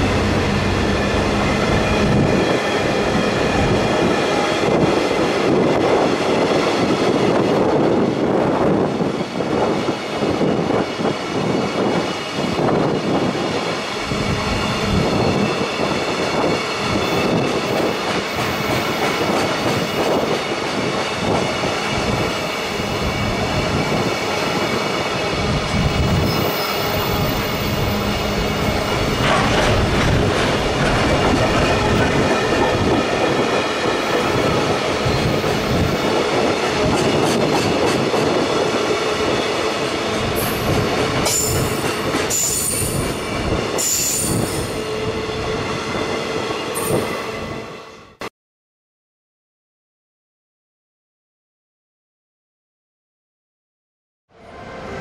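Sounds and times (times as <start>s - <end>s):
train wheels rumbling on rail: 0.0s - 47.9s
high wheel squeal: 26.0s - 29.2s.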